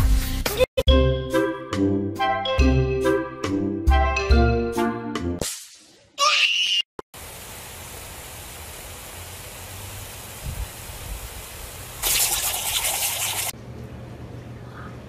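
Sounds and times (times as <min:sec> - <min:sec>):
lawn sprinkler spraying water: 0:07.2 - 0:13.6.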